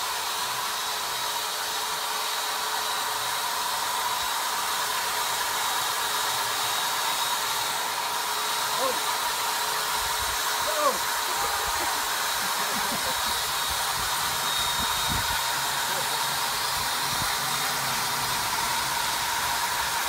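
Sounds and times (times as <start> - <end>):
electric motor whirring: 0.0 - 20.0
faint high whine: 10.6 - 19.9.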